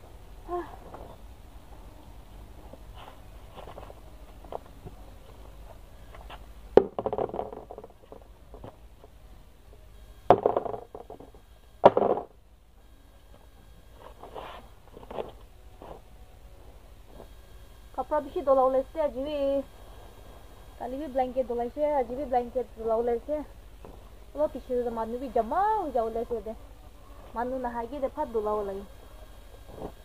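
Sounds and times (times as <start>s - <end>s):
soft rustling of clothes: 0.5s - 6.5s
scraping rustle: 2.6s - 6.5s, 13.9s - 16.1s.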